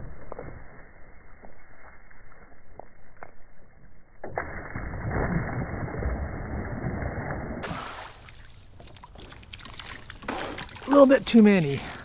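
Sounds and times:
water splashing: 0:04.4 - 0:12.0
net slapping water: 0:07.6 - 0:11.9.

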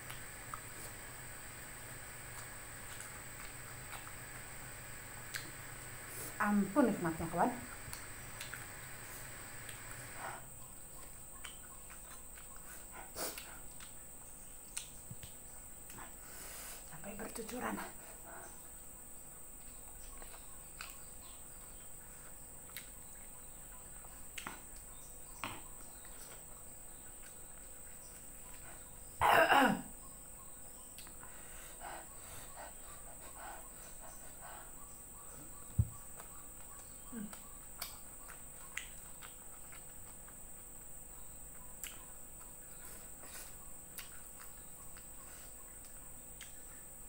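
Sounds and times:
faint hiss: 0:00.0 - 0:10.6, 0:12.6 - 0:13.7, 0:14.7 - 0:18.6
person coughing: 0:29.2 - 0:29.9.

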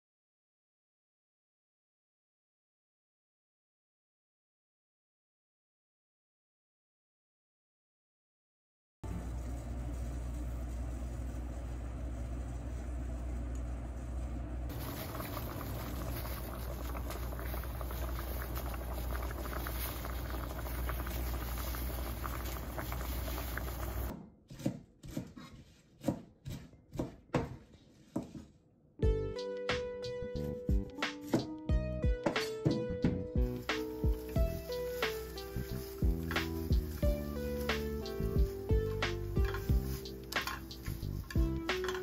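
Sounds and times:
water boiling in saucepans: 0:09.1 - 0:24.1, 0:33.4 - 0:42.0
knife chopping on cutting board: 0:24.1 - 0:28.5.

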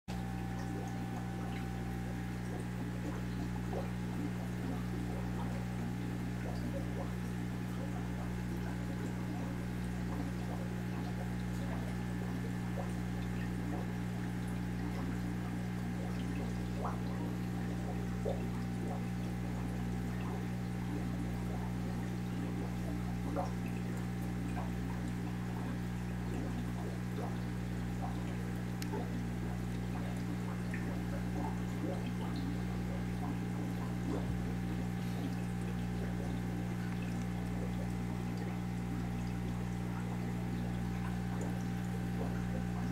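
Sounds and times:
low pump hum: 0:00.0 - 0:42.9
water trickling and pouring: 0:00.2 - 0:42.9
small clicks and ticks: 0:35.7 - 0:37.7.

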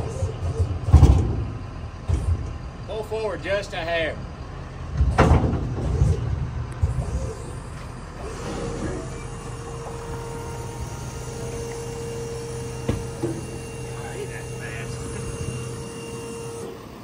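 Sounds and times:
heavy clunks and rumbling: 0:00.0 - 0:02.9, 0:04.4 - 0:13.9
pickup truck idling: 0:00.0 - 0:17.0
steady mechanical whine: 0:00.0 - 0:17.0.

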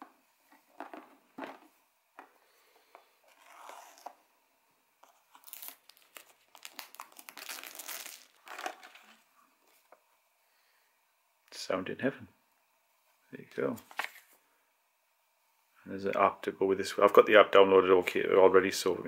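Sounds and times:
plastic wrap crinkling: 0:05.0 - 0:09.2.

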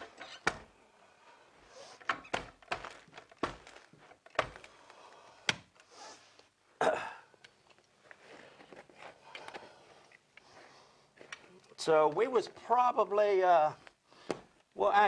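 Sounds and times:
carpet rustling: 0:00.0 - 0:06.6, 0:07.6 - 0:12.2.

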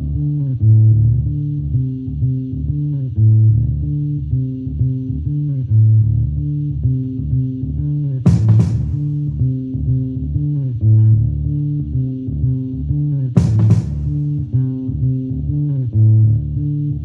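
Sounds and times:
music with plucked bass line: 0:00.0 - 0:17.0.

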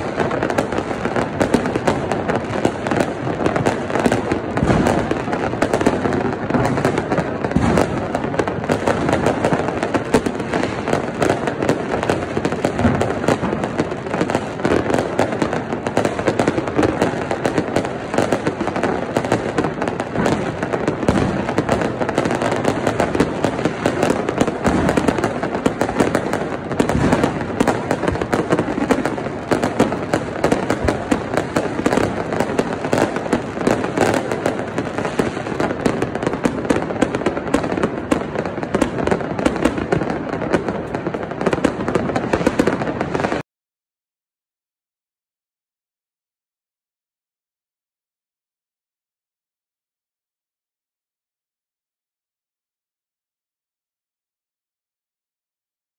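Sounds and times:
fireworks bangs and crackles: 0:00.0 - 0:43.4.

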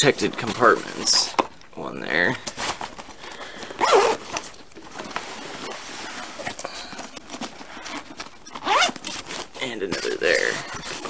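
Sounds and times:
cloth bag rustling: 0:02.5 - 0:11.0.

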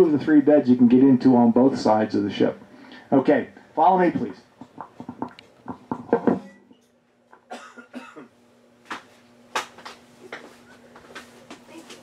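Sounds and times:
low hum: 0:00.0 - 0:07.4.

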